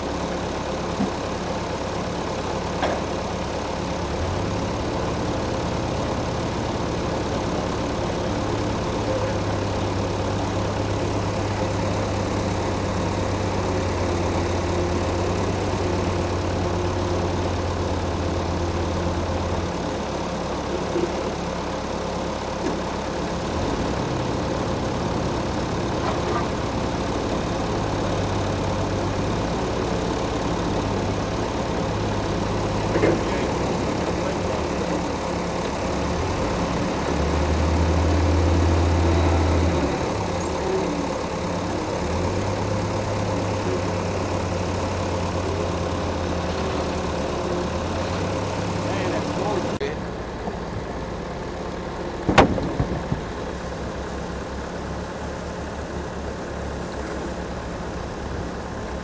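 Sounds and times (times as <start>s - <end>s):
sawmill engine running: 0.0s - 59.0s
sharp knock: 52.3s - 53.2s.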